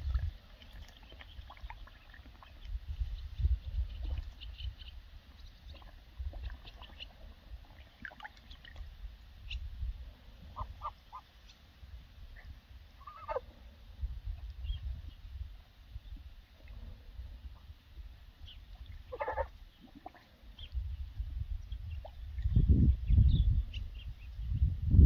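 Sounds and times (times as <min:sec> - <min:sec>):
geese calling softly: 0:00.6 - 0:11.7, 0:12.3 - 0:15.3, 0:18.4 - 0:20.8.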